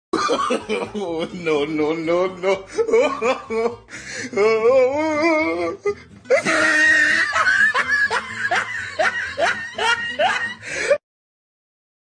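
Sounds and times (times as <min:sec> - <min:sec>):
laughter: 0:00.2 - 0:01.4, 0:02.7 - 0:03.8, 0:06.3 - 0:11.0.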